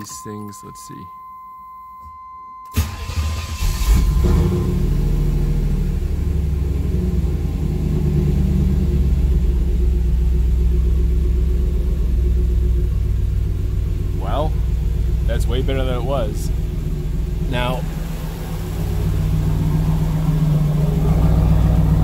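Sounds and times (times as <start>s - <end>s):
car starter cranking: 2.7s - 5.1s
car engine idling: 2.8s - 22.0s.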